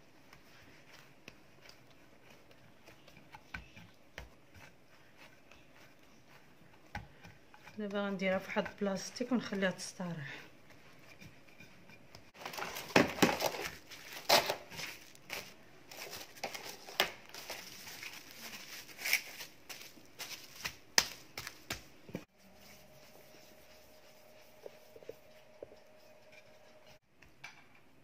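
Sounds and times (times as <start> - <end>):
faint steady hum: 19.5 - 28.0.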